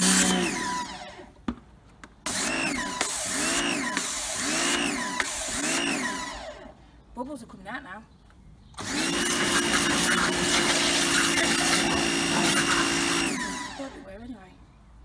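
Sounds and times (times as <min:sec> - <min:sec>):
pressure washer motor: 0:00.0 - 0:01.3, 0:02.2 - 0:06.8, 0:08.8 - 0:14.1.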